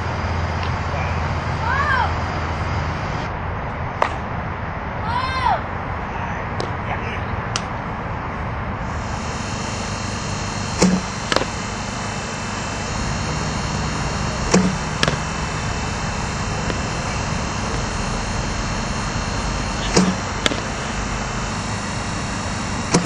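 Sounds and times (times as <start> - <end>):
steady outdoor hiss: 0.0 - 23.0
bat cracking against ball: 4.0 - 4.3, 6.6 - 6.8, 10.8 - 12.0, 14.5 - 15.4, 19.8 - 21.6.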